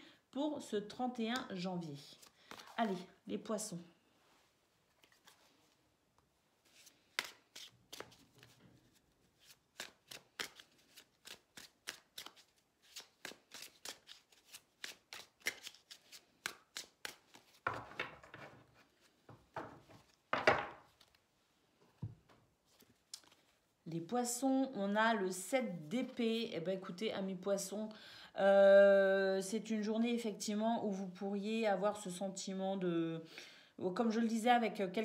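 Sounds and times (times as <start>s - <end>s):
cards rustling swishes: 6.6s - 17.6s, 22.6s - 23.6s
cards shuffling clicks: 9.4s - 17.9s.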